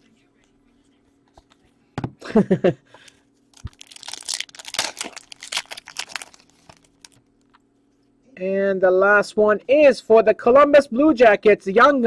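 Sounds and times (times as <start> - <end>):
plastic wrapper crackling: 3.5 - 7.6.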